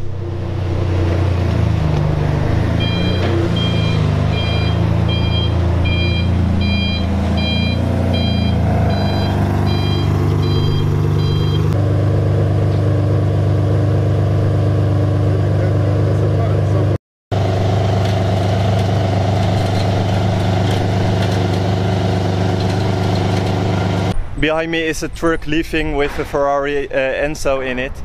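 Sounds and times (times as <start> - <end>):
car engine idling: 0.0 - 24.2
electronic warning beep: 2.8 - 11.8.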